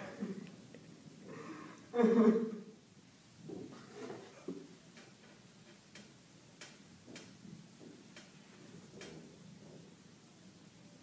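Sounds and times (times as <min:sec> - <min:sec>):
faint sharp clicks: 0:05.9 - 0:07.3.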